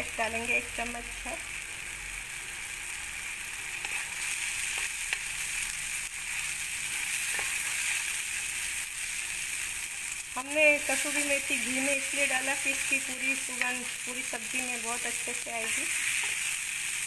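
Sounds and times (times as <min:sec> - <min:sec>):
paste sizzling in a pan: 0:00.0 - 0:17.0
wooden spatula stirring: 0:06.9 - 0:08.2.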